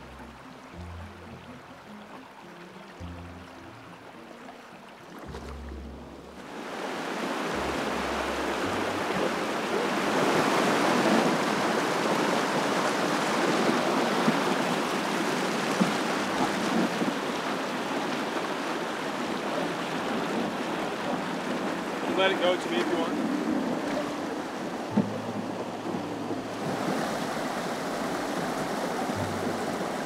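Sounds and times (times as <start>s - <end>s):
river rapids rushing over rocks: 6.4s - 30.0s.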